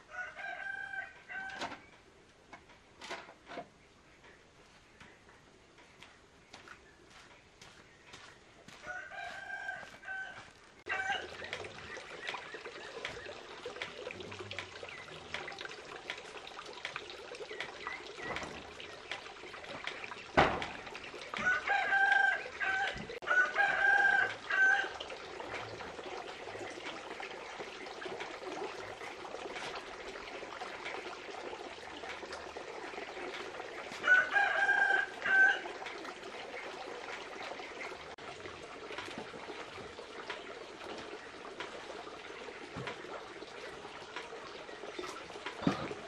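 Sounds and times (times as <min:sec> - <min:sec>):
rooster crowing: 0:00.0 - 0:01.7, 0:08.8 - 0:11.4, 0:21.4 - 0:25.0, 0:34.0 - 0:35.6.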